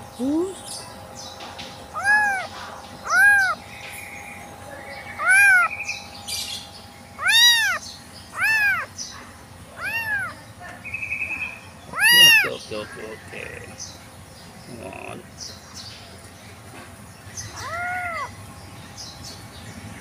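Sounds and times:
kitten meowing: 2.0s - 3.6s, 5.2s - 5.7s, 7.2s - 8.9s, 9.8s - 10.4s, 11.9s - 12.6s, 17.5s - 18.3s.

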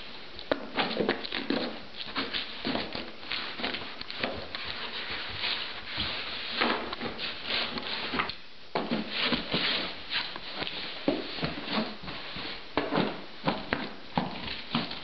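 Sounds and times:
cardboard box scraping on floor: 4.6s - 8.3s, 8.9s - 13.2s.

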